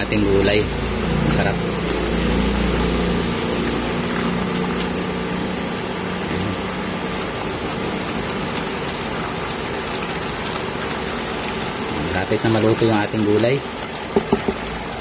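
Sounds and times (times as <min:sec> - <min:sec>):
food sizzling in wok: 0:00.6 - 0:09.9.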